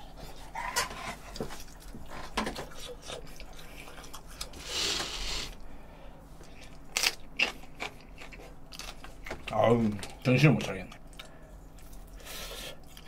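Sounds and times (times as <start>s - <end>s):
breathy hiss: 4.6s - 6.2s
crunching bites of pepper: 6.6s - 9.6s.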